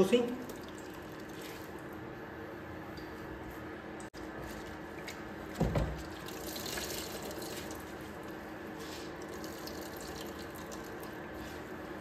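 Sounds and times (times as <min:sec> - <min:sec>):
juice trickling and dripping: 0:00.2 - 0:02.0, 0:04.0 - 0:08.4, 0:09.0 - 0:11.4.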